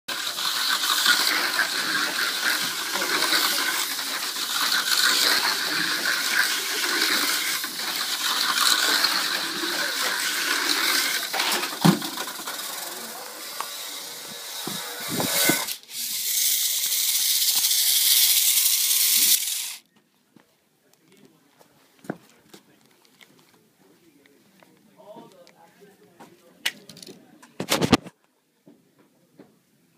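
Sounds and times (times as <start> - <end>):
toy car motor whirring: 0.1 - 19.9.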